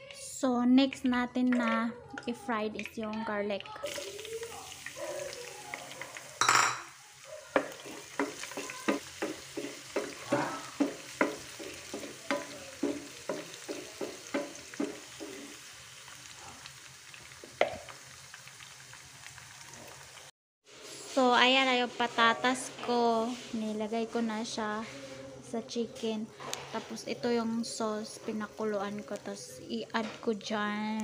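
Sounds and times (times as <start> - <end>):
garlic sizzling in hot oil: 3.8 - 24.6, 26.4 - 31.0
wooden spatula scraping pan: 7.6 - 15.6.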